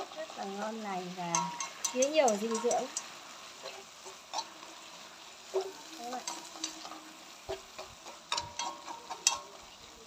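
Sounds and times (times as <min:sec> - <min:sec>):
food sizzling in a wok: 0:00.0 - 0:10.0
chopsticks knocking and scraping pan: 0:01.2 - 0:09.8.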